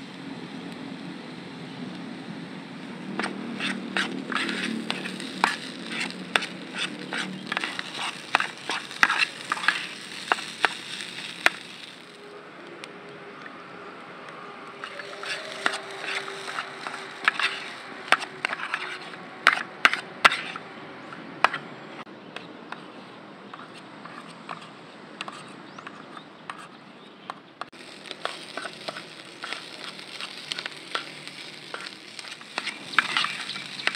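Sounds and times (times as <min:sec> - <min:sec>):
light sizzle: 0:00.0 - 0:20.6, 0:27.6 - 0:33.9
metal spatula scraping a pan: 0:03.2 - 0:12.1, 0:14.8 - 0:20.7, 0:28.0 - 0:33.9.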